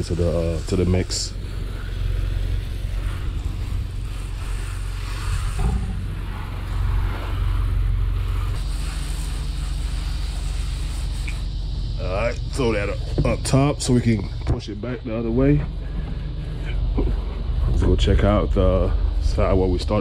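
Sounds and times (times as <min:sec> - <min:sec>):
hiss of spray hitting wood: 0:00.0 - 0:13.5
pressure washer engine drone: 0:00.0 - 0:20.0.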